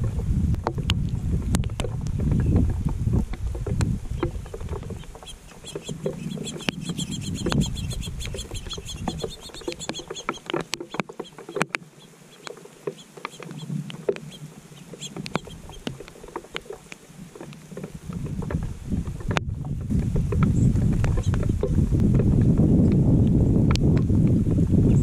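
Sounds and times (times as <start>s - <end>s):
wind rumble on microphone: 0.0s - 11.0s, 13.5s - 25.0s
sharp ticks: 3.8s - 17.6s
songbird trilling: 4.1s - 16.1s.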